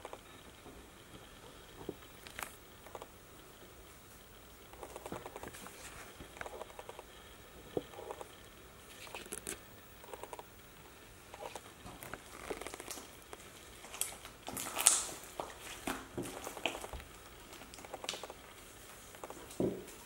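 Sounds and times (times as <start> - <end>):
slime squelching and crackling: 11.3 - 20.0.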